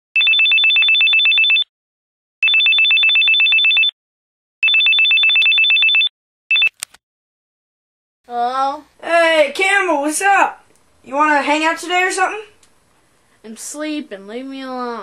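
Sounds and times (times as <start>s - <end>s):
telephone ringing electronic trill: 0.2s - 1.7s, 2.4s - 4.0s, 4.6s - 6.7s.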